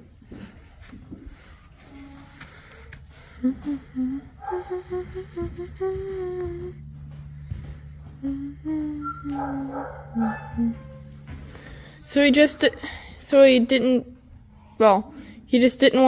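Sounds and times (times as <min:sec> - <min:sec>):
steady low drone: 0:00.0 - 0:15.6
person humming a slow tune: 0:01.8 - 0:12.1.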